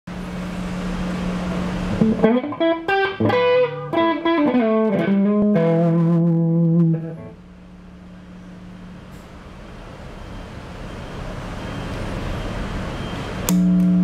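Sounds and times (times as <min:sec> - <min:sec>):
steady amp hum: 0:00.1 - 0:14.0
overdriven electric guitar: 0:01.9 - 0:07.4.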